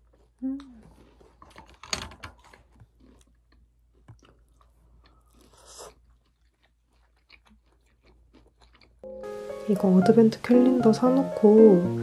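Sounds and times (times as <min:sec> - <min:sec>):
crunchy chewing: 0:00.0 - 0:09.1.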